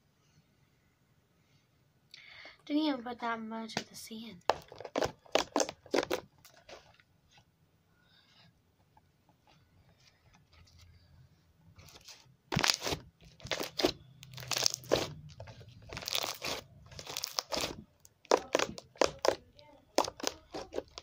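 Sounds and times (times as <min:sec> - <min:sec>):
slime crunchy crackles: 0:04.5 - 0:06.8, 0:11.8 - 0:21.0.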